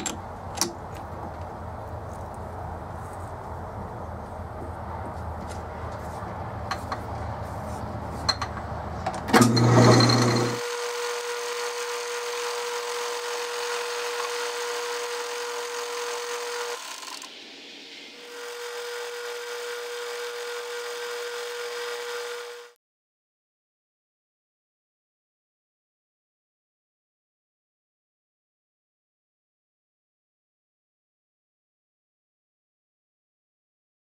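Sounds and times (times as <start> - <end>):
metal lathe whining: 9.3 - 17.4, 18.2 - 22.7.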